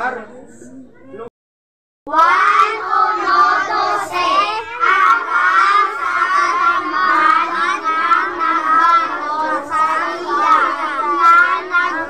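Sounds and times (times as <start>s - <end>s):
children reading aloud in unison: 2.1s - 12.0s.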